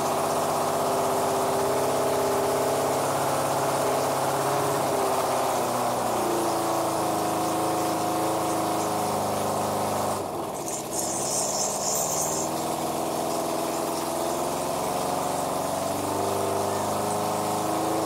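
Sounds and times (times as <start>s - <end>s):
motorcycle engine running: 0.0s - 18.0s
short high hiss: 10.6s - 12.8s.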